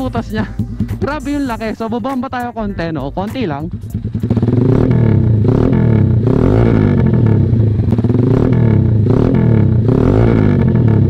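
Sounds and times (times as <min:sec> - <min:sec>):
loud motorcycle revving: 0:02.8 - 0:11.0.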